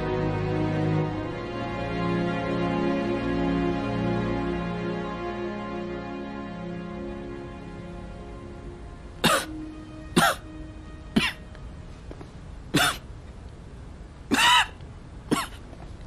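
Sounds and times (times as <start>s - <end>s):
faint background music: 0.0s - 16.0s
man coughing: 9.2s - 9.6s, 10.2s - 10.5s, 11.2s - 11.4s, 12.8s - 13.0s, 14.3s - 15.6s.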